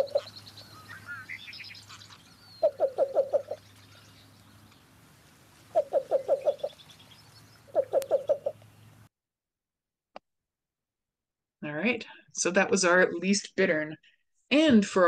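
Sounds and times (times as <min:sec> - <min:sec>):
bird low cooing: 0:00.0 - 0:01.4, 0:02.2 - 0:04.2, 0:05.7 - 0:06.8, 0:07.7 - 0:08.7
birds chirping faintly: 0:00.0 - 0:09.1.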